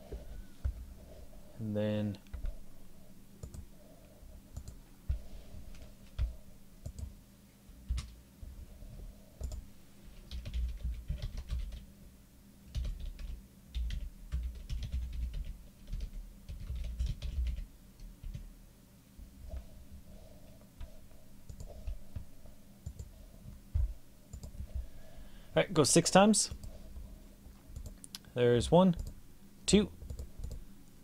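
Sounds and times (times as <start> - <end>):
typing on computer keyboard: 3.4 - 3.6, 9.4 - 9.6, 10.3 - 11.9, 12.7 - 18.4, 21.5 - 22.2, 22.8 - 23.1, 24.3 - 24.6, 30.0 - 30.6.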